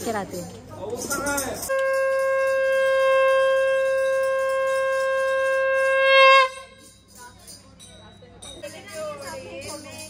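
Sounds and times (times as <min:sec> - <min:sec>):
conch shell blown: 0:01.7 - 0:07.1.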